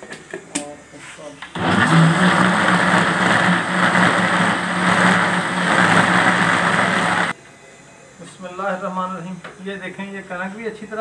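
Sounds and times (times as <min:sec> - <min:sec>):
electric blender grinding: 0:01.6 - 0:07.4.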